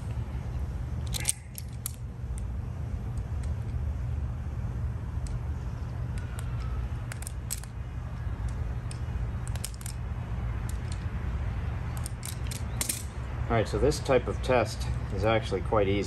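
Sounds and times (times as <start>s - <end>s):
steady low rumble: 0.0s - 16.0s
wire strippers snipping: 1.0s - 2.5s, 6.1s - 10.0s, 11.9s - 13.2s.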